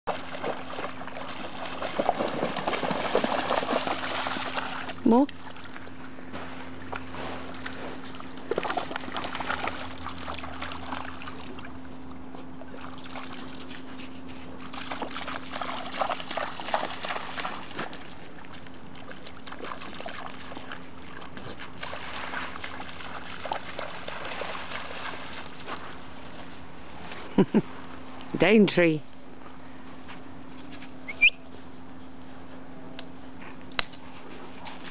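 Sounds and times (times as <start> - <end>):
dogs splashing through water: 0.1 - 26.9.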